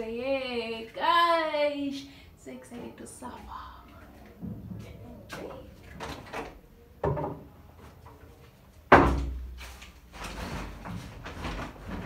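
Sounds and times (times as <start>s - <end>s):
rustling and light clatter: 7.2s - 12.0s.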